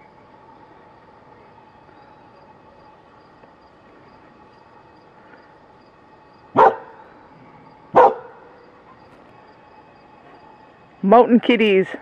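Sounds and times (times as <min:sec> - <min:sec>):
faint steady hum: 0:00.0 - 0:12.0
dog barking: 0:06.6 - 0:07.0, 0:08.0 - 0:08.4.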